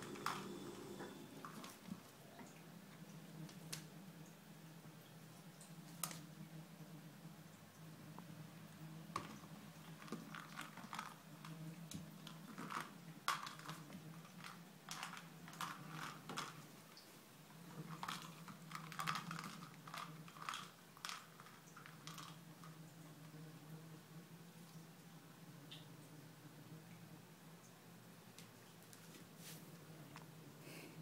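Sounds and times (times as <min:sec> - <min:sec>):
plastic ball clicking on tile floor: 0:12.2 - 0:16.6, 0:17.9 - 0:22.7
treats rattling inside ball: 0:17.7 - 0:22.4.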